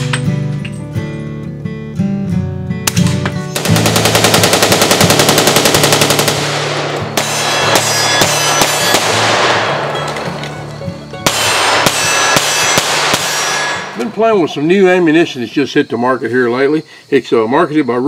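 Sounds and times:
background music: 0.0 - 14.6
pistol shots: 2.8 - 15.0
rapid gunfire burst: 3.6 - 9.8, 11.3 - 14.0.

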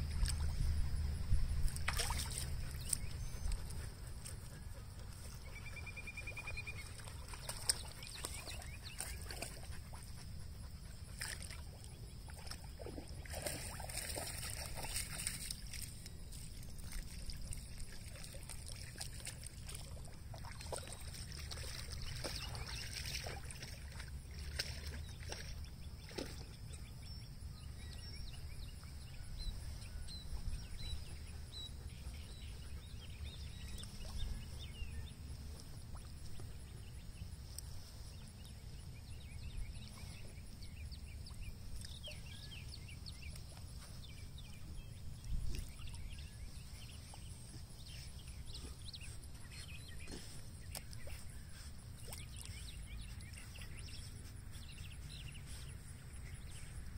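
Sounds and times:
low outdoor rumble: 0.0 - 7.3
water splashing: 1.6 - 3.6, 11.2 - 26.5.

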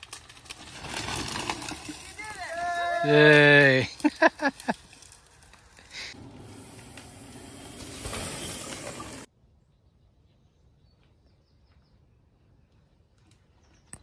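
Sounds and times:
bike tyres crunching over leaves: 0.0 - 9.3.

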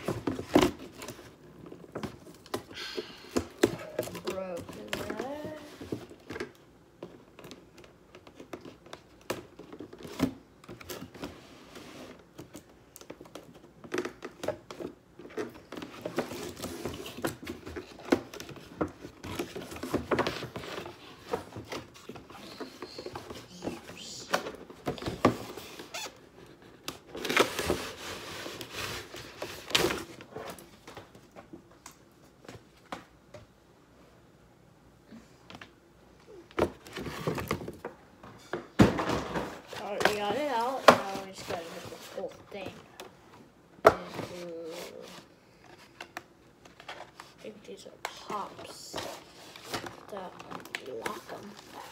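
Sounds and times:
cardboard box and plastic packaging rustling: 0.0 - 33.0, 36.5 - 51.9.

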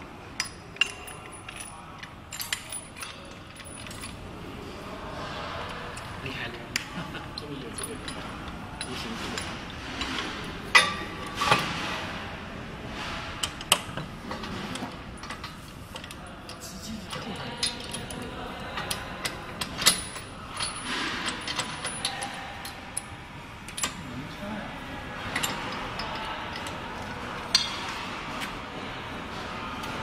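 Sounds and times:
metal hardware clicks and knocks: 0.4 - 4.2, 5.9 - 12.0, 13.0 - 23.1, 25.3 - 26.8, 27.4 - 28.0.

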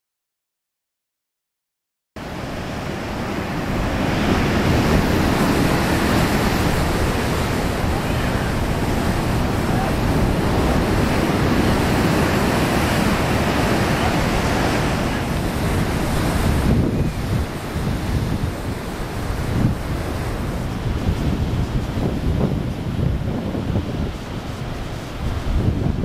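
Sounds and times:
ocean surf breaking on beach: 2.2 - 26.0
wind buffeting microphone: 2.2 - 26.0.

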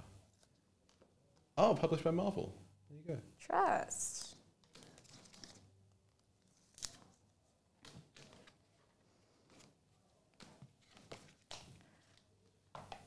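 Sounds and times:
trading cards clicking and rustling: 4.6 - 5.7, 7.8 - 8.6.

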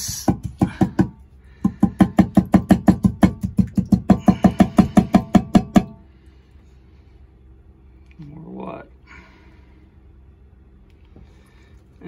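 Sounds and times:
plastic pipe knocking on steel bowl: 0.2 - 6.0.

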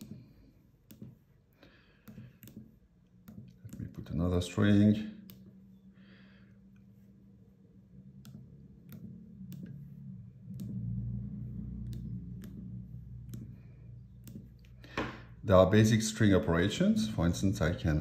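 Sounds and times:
calculator keys clicking: 0.0 - 1.2, 1.9 - 4.3, 8.0 - 14.8
low hum: 5.0 - 17.7.

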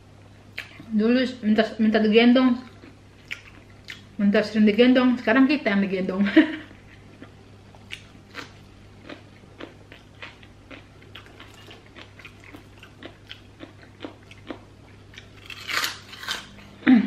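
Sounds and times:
steady low hum: 0.0 - 17.0
close chewing and crunching: 2.6 - 4.1, 7.0 - 16.8.

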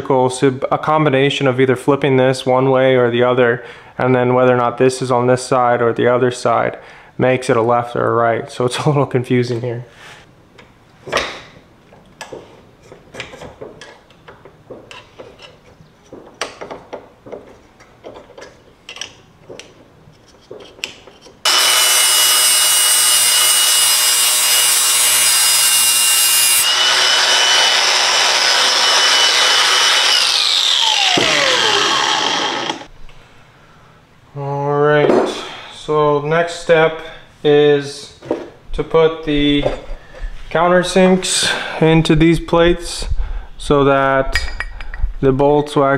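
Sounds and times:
angle grinder grinding metal: 21.4 - 32.9.

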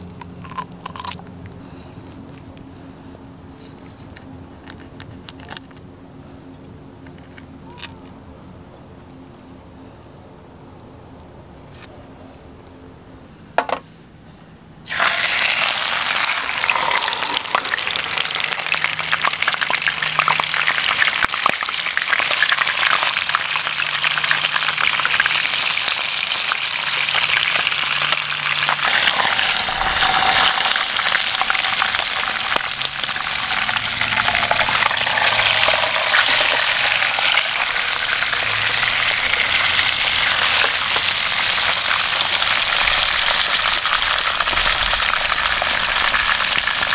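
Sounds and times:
fish sizzling in hot oil: 14.9 - 46.9.

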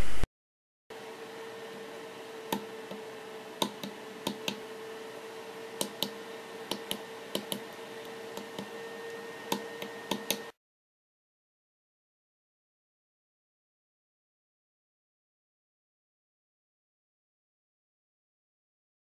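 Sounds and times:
pushbuttons clicking: 9.5 - 10.4.

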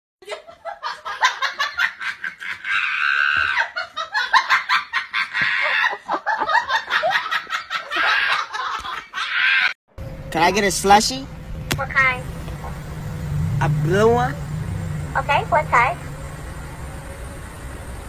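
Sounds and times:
high-pitched laughter: 0.2 - 9.8.

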